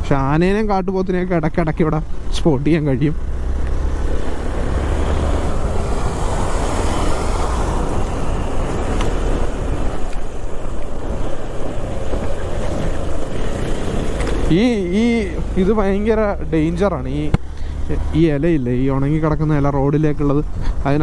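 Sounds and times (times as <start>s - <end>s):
motorcycle engine rumble: 0.0s - 19.8s
wind rushing over microphone: 0.0s - 21.0s
tyres hissing on wet road: 3.2s - 14.6s.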